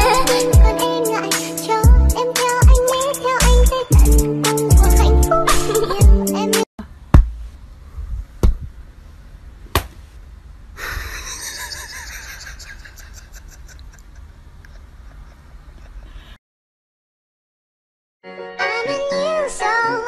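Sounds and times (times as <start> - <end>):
sharp knocks: 7.1 - 7.4.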